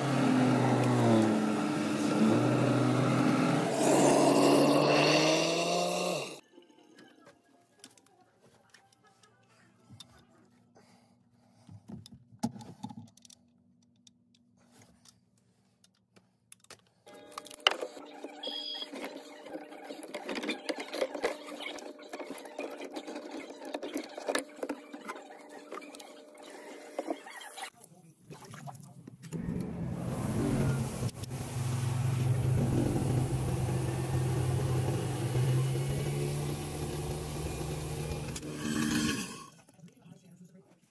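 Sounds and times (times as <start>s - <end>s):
garbage disposal motor hum: 0.0s - 6.4s, 29.4s - 39.5s.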